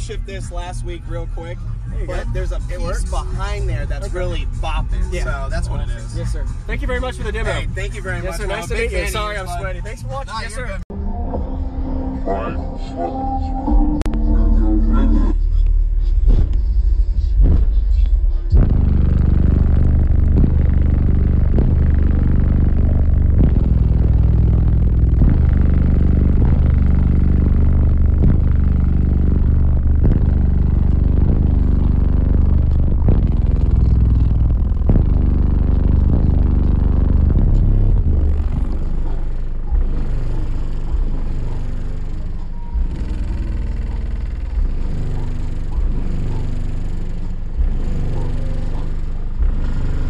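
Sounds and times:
loud deep bass from subwoofers: 0:00.0 - 0:50.0
sharp bass hit: 0:10.9 - 0:50.0.

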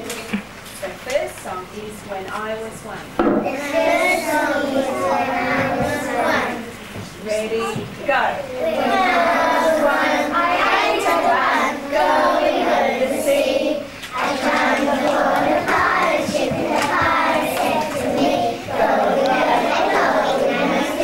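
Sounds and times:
children singing in unison: 0:03.5 - 0:06.7, 0:08.5 - 0:21.0.

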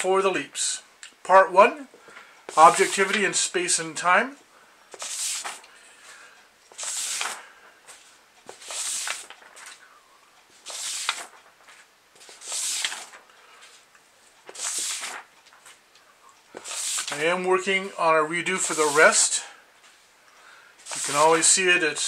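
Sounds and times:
paper sheets rustling: 0:02.5 - 0:03.5, 0:04.9 - 0:09.9, 0:10.5 - 0:15.8, 0:16.5 - 0:20.1, 0:20.8 - 0:22.0.

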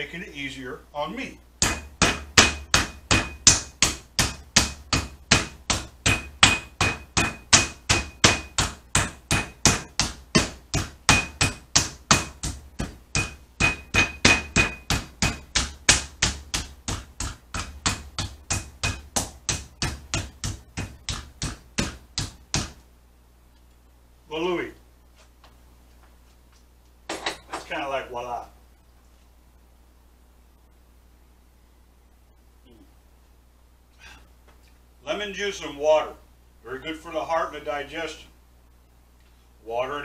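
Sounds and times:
meat mallet pounding meat: 0:01.6 - 0:22.8.

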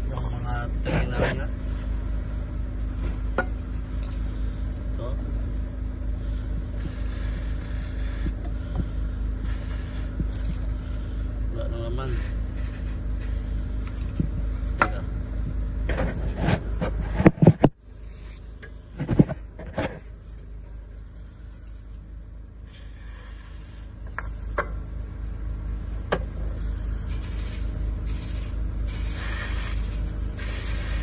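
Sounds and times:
low machine hum: 0:00.0 - 0:31.0
handling knocks and scrapes: 0:13.9 - 0:20.2.

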